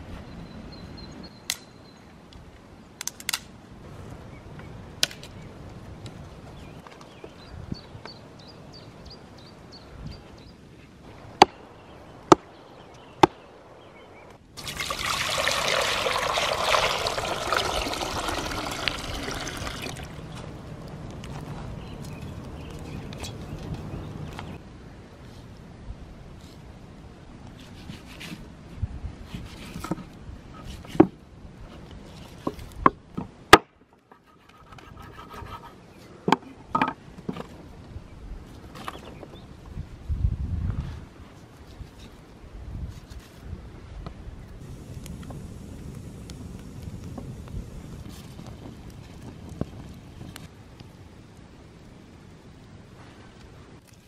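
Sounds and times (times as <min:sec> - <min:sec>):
water pouring into a steel pot: 0:14.6 - 0:20.2.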